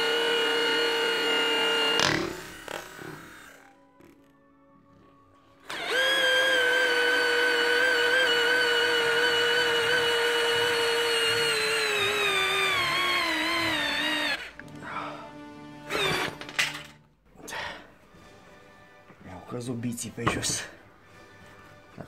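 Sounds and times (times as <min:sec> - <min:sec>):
cordless drill driving screw: 0:00.0 - 0:04.3, 0:05.6 - 0:14.7, 0:15.9 - 0:16.5.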